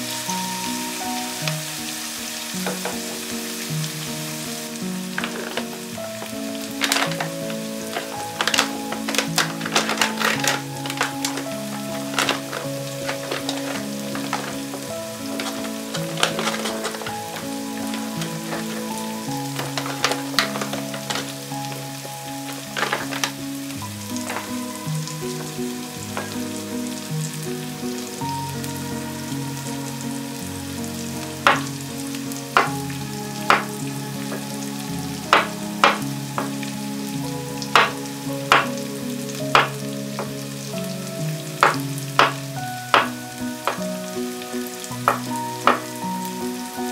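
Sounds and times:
soft background music: 0.0 - 46.9
crinkly packet rustling: 5.0 - 26.5
knife tapping cutting board: 45.1 - 45.8.

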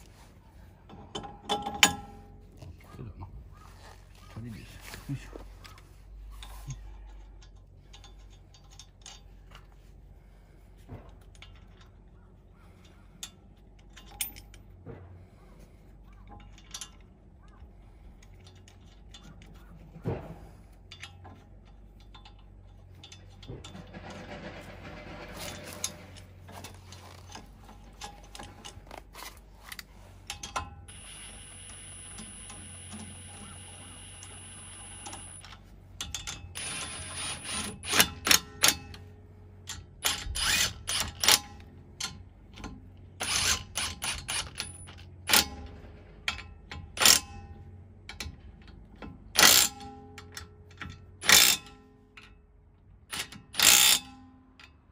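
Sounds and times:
light metal clinks: 11.2 - 14.8
impact wrench whining: 30.9 - 35.5, 36.1 - 38.8, 40.0 - 41.4, 43.2 - 45.4, 53.1 - 54.0.

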